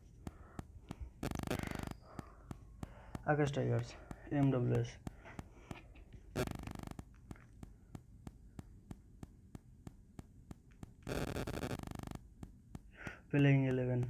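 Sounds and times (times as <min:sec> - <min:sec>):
short buzzing bursts: 0:00.0 - 0:03.2, 0:05.0 - 0:07.6, 0:11.0 - 0:12.3
faint regular electrical clicks: 0:00.0 - 0:14.0.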